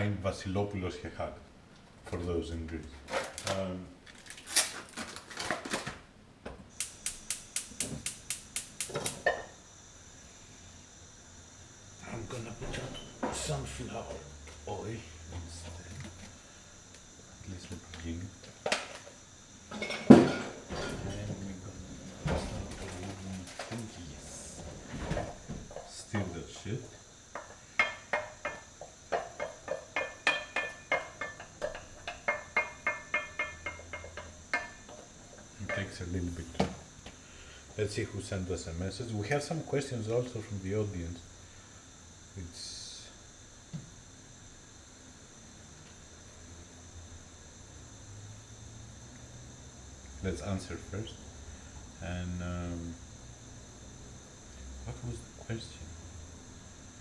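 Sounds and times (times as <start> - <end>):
spoon knocking metal frying pan: 27.4 - 34.8.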